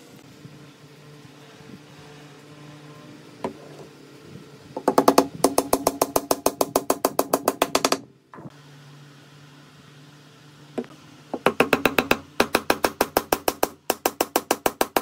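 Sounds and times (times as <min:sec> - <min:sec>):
wooden mallet knocking wood: 0:04.8 - 0:08.5, 0:10.8 - 0:15.0.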